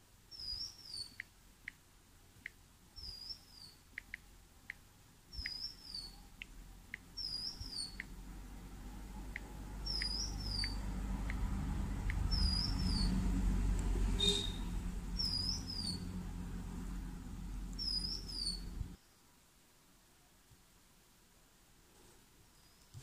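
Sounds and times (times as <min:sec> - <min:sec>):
small bird chirping: 0:00.3 - 0:01.4, 0:02.4 - 0:08.2, 0:09.2 - 0:13.3, 0:14.1 - 0:16.2, 0:17.7 - 0:19.2, 0:22.4 - 0:23.0
steady low rumble: 0:06.2 - 0:19.0.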